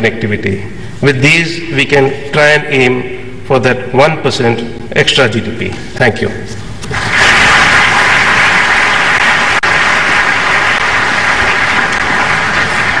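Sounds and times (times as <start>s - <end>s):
audience applauding: 6.9s - 13.0s.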